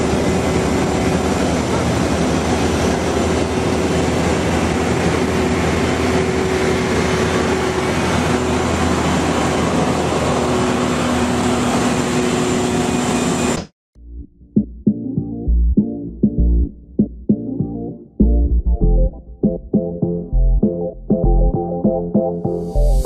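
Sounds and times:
jet turbine roar: 0:00.0 - 0:13.7.

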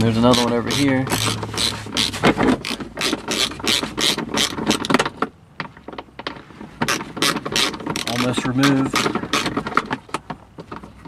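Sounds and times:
ratchet wrench clicking: 0:00.2 - 0:04.9.

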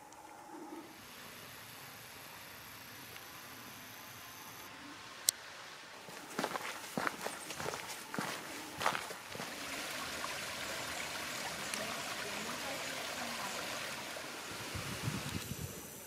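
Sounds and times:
brook splashing over rocks: 0:06.0 - 0:15.4
footsteps on gravel: 0:06.1 - 0:09.6.

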